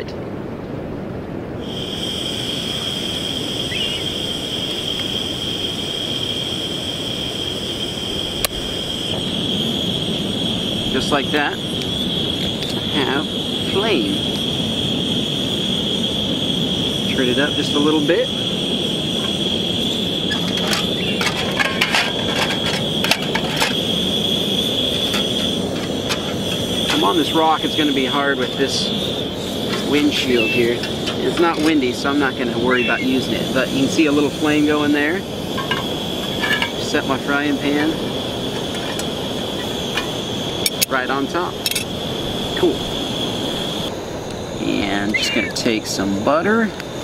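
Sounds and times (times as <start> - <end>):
gas hissing from stove burner: 1.5 - 47.0
frying pan clinking and knocking: 35.6 - 36.8.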